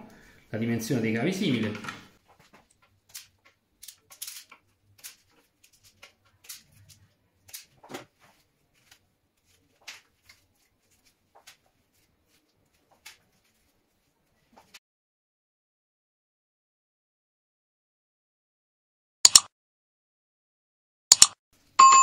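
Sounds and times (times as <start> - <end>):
wire stripper clicks and rustles: 1.6 - 10.4.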